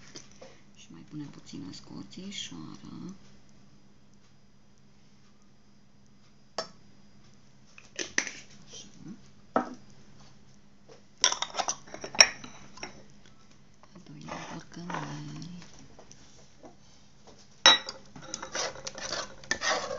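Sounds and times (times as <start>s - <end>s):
glass jar clinking on saucer: 17.7s - 18.6s.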